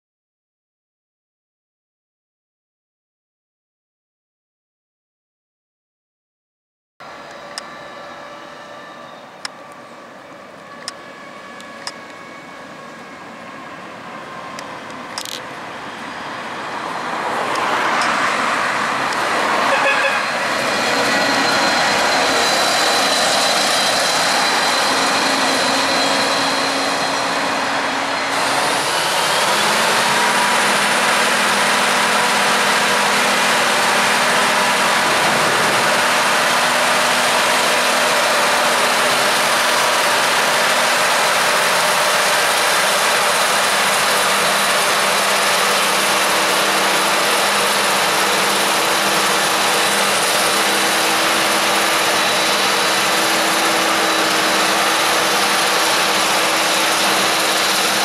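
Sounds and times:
forage harvester droning: 7.0s - 58.0s
road traffic: 7.0s - 58.0s.

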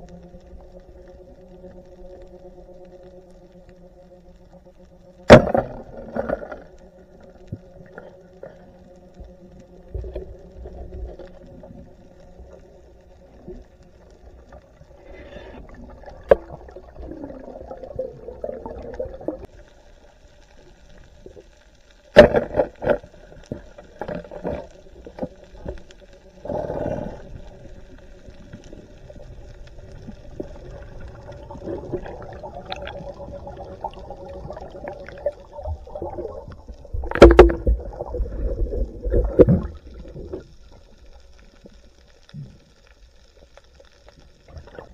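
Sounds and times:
muffled underwater water movement: 0.0s - 44.9s
sharp underwater knocks: 5.3s - 5.8s, 37.0s - 37.9s.

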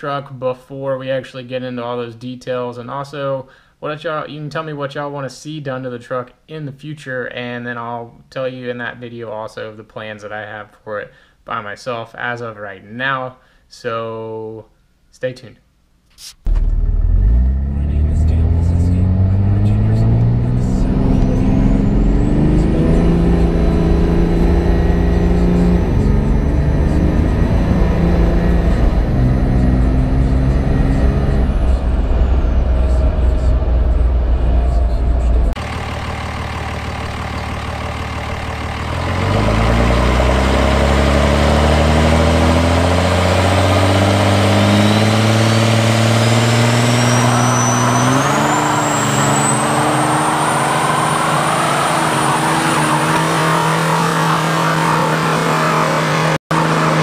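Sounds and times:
diesel truck engine revving: 16.5s - 57.0s
high turbo whine: 16.5s - 57.0s.

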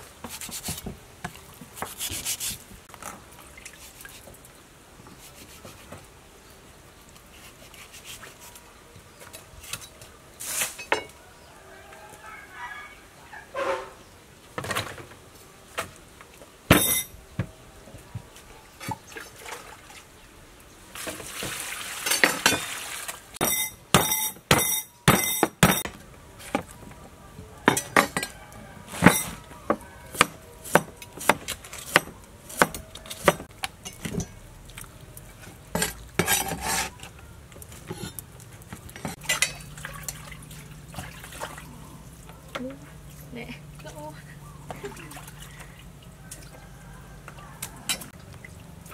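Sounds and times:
knife chopping on wooden board: 29.7s - 33.5s.

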